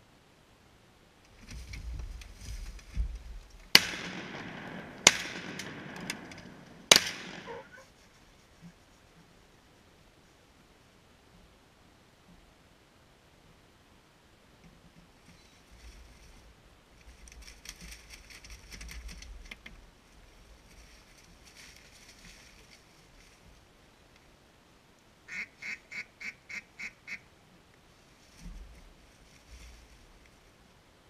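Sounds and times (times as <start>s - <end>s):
duck quacking: 7.4s - 7.9s, 25.3s - 27.2s.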